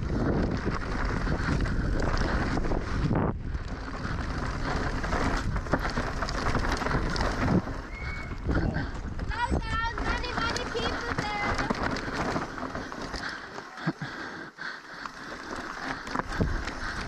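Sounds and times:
wind rushing over microphone: 0:00.0 - 0:13.2
bike knocking and rattling: 0:00.0 - 0:17.0.

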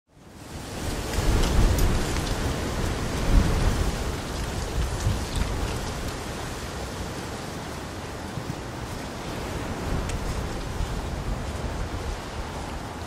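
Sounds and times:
rain falling on water: 0:00.1 - 0:13.0.

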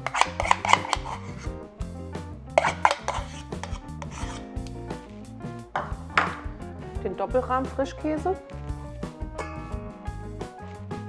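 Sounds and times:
metal spoon scraping bowls: 0:00.0 - 0:01.5, 0:02.5 - 0:04.5
background music: 0:00.0 - 0:11.0.

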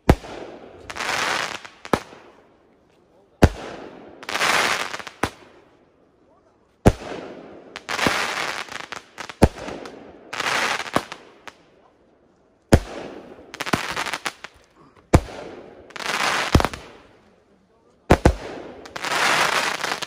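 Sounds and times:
fireworks bangs: 0:06.8 - 0:11.6, 0:12.7 - 0:17.2, 0:18.0 - 0:20.0
fireworks hissing rush: 0:18.2 - 0:20.0.

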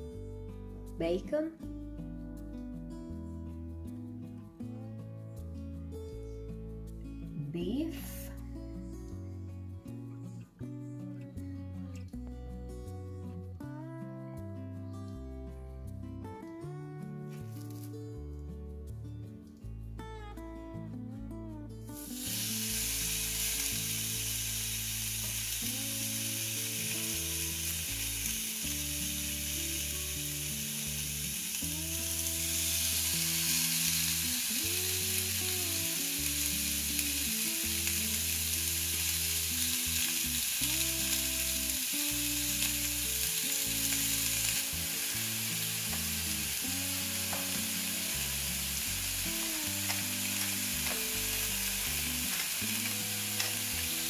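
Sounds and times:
steaks sizzling on a grill pan: 0:22.0 - 0:54.0.

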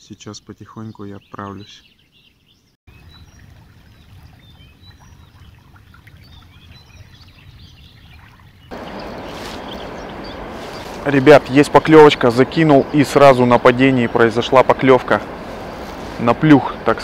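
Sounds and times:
songbirds chirping: 0:00.0 - 0:17.0
low background rumble: 0:08.7 - 0:17.0
river water rushing: 0:08.7 - 0:17.0.

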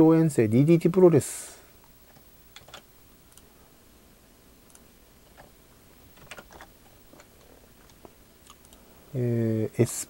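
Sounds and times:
computer keyboard keystrokes: 0:02.5 - 0:03.4.

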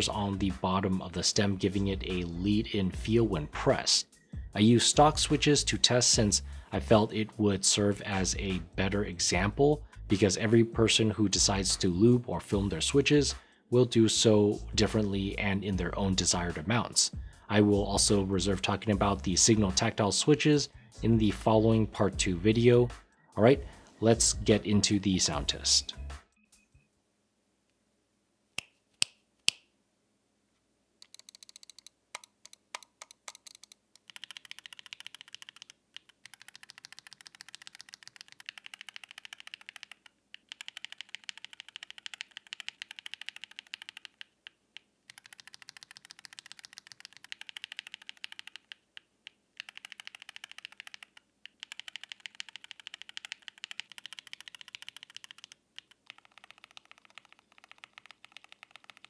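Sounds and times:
mechanical keyboard typing: 0:31.0 - 0:59.0.

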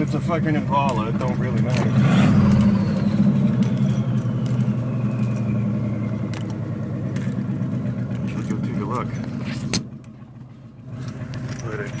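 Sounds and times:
car engine idling: 0:00.0 - 0:12.0
light rattles and clicks: 0:06.3 - 0:12.0.

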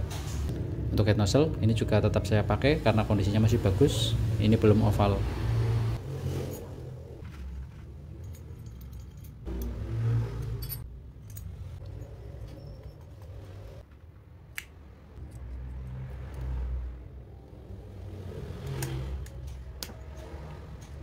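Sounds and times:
metal parts clicking and clinking: 0:06.5 - 0:13.4, 0:18.6 - 0:21.0.

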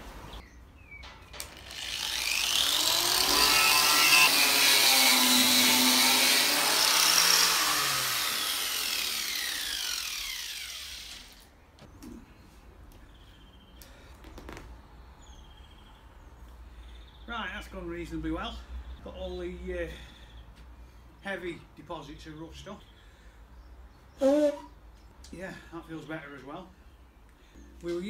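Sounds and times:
angle grinder grinding rust off steel: 0:01.3 - 0:11.5.

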